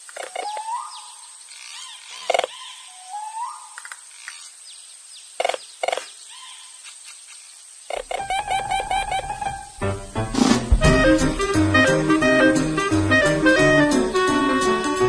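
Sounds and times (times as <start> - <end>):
sharp loud animal calls: 7.9 - 11.5
rising whistled animal calls: 8.1 - 9.8.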